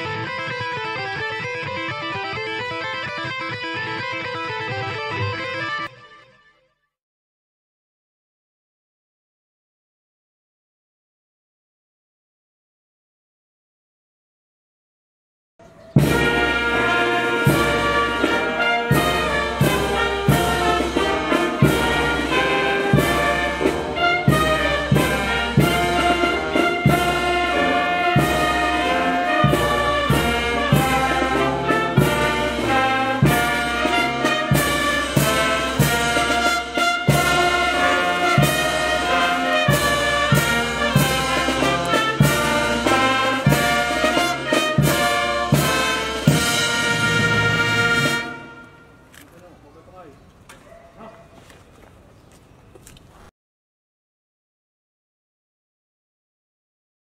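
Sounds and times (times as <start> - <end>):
steady drum beat: 16.0 - 48.3
brass playing a tune: 16.0 - 49.2.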